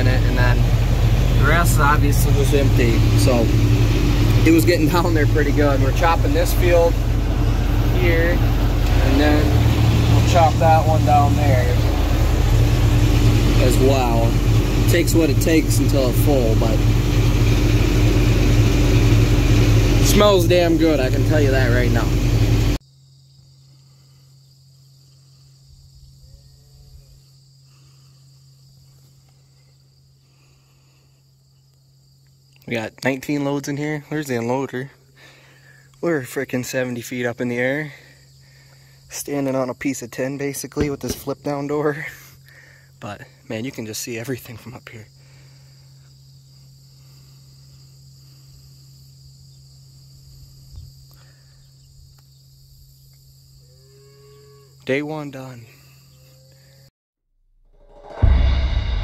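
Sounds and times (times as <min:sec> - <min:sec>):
brief low rumble: 0:00.0 - 0:15.3, 0:57.7 - 0:59.0
insects chirring: 0:00.0 - 0:16.1, 0:22.8 - 0:56.9
steady low hum: 0:00.0 - 0:22.8, 0:57.8 - 0:59.0.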